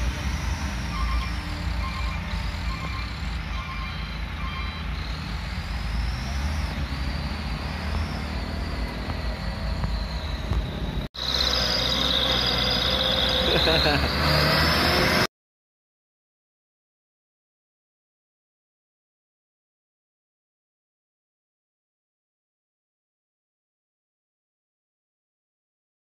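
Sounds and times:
diesel truck engine rumbling: 0:00.0 - 0:15.3.

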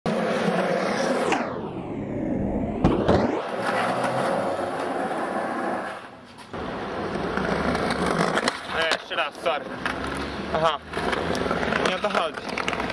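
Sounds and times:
skateboard rolling on concrete: 0:00.1 - 0:01.6, 0:02.8 - 0:12.9
whoosh of passing skateboard: 0:00.1 - 0:09.0
skateboard clacks: 0:03.6 - 0:12.9.

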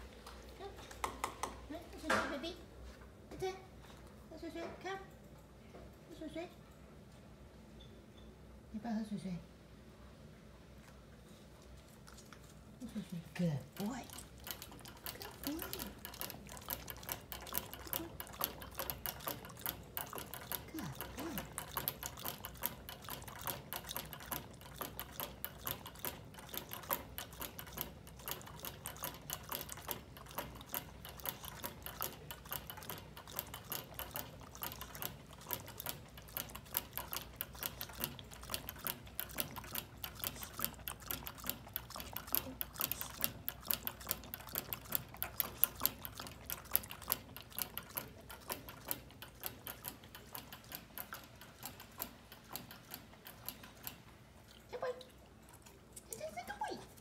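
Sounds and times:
dog lapping at water bottle spout: 0:11.7 - 0:57.0.

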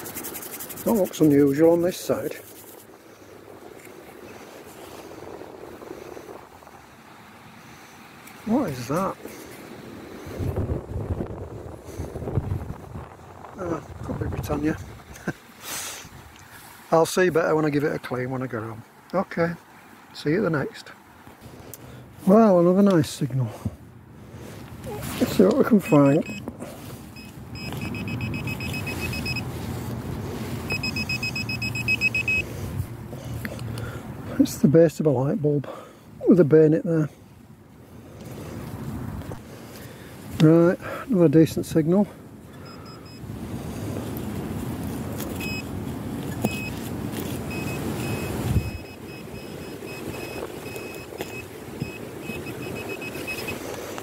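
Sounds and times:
wind rumble on microphone: 0:00.0 - 0:15.4, 0:43.2 - 0:54.0
pinpointer probe beeping rapidly: 0:25.8 - 0:26.4, 0:27.2 - 0:29.5, 0:30.7 - 0:32.4, 0:46.4 - 0:46.8, 0:47.4 - 0:53.6.

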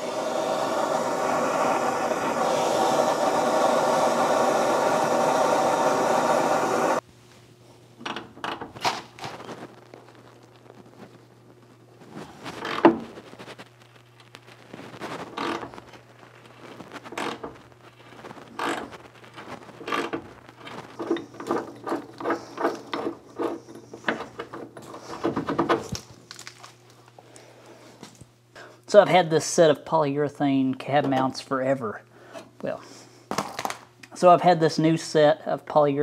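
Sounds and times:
gas torch flame roaring: 0:00.0 - 0:07.0.

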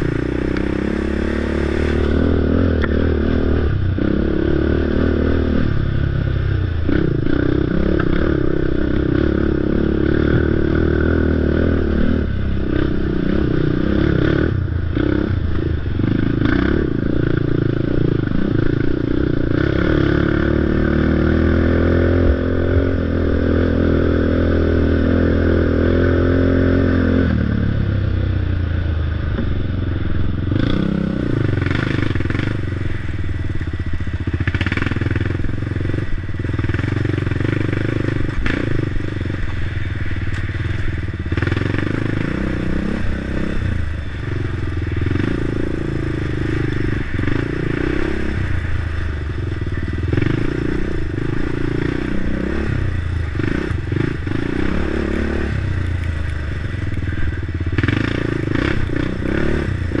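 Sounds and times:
race car engine running hard: 0:00.0 - 0:19.5.

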